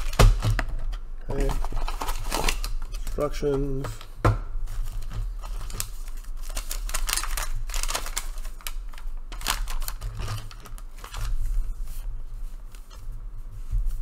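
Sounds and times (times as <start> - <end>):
paper rustling and crackling: 0.0 - 14.0
plastic bag crinkling: 4.7 - 13.0.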